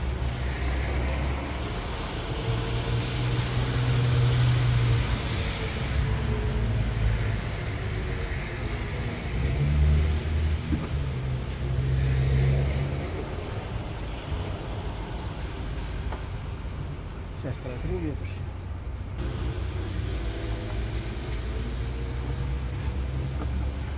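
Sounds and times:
aerosol can hissing: 0.0 - 14.9.

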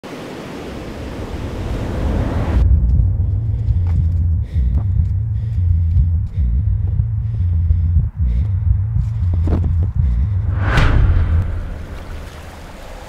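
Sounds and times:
deep low rumble: 2.6 - 13.0
ocean surf hissing: 11.3 - 13.0.

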